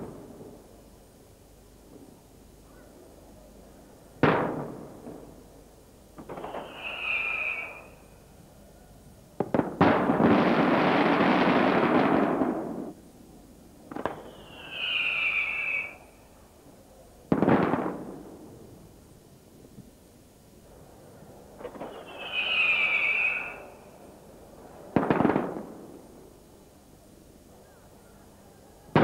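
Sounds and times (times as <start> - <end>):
firework bangs: 4.2 - 5.4, 6.2 - 8.0, 9.4 - 13.0, 13.9 - 16.0, 17.3 - 18.4, 21.6 - 23.8, 24.9 - 26.0
firework cracks: 6.2 - 8.0, 9.4 - 13.0, 13.9 - 16.0, 17.3 - 18.4, 21.6 - 23.9, 24.9 - 25.8
firework whistling: 6.2 - 8.3, 13.9 - 16.4, 21.6 - 24.2.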